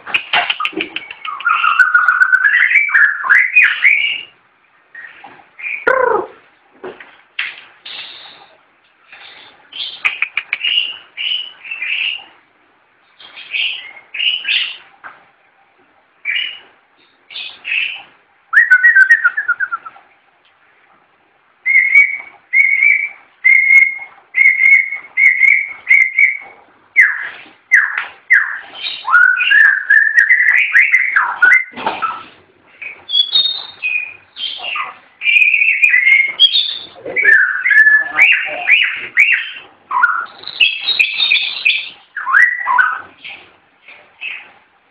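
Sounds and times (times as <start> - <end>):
bird singing whistled phrases: 1.0 - 4.3, 17.3 - 19.9, 21.6 - 32.2, 32.8 - 43.1.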